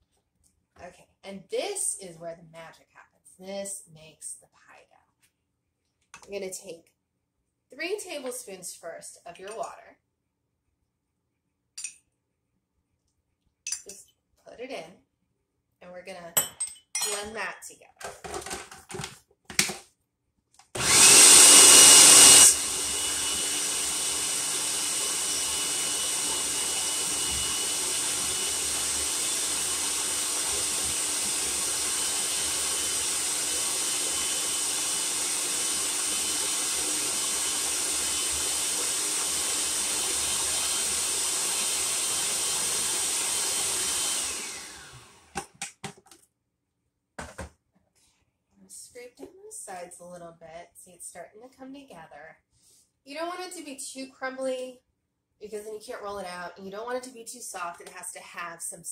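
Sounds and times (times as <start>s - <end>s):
food processor whirring: 20.7s - 45.9s.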